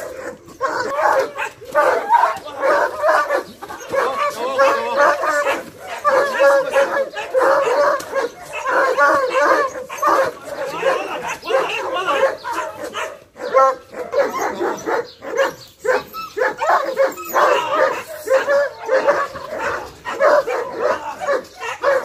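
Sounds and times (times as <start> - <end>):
dog barking and whining: 0.0 - 22.0.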